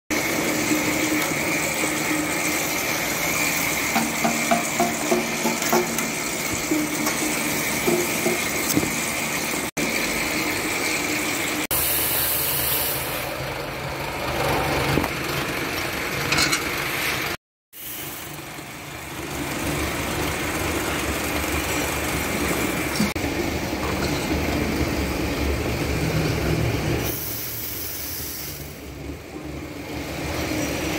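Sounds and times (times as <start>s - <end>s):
machinery whining: 0.1s - 11.7s.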